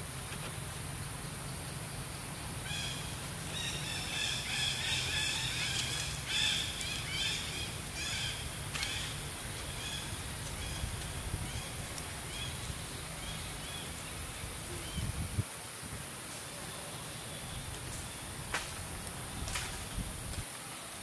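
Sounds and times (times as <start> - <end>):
low outdoor rumble: 0.0 - 15.4
birds chirping: 2.7 - 15.4.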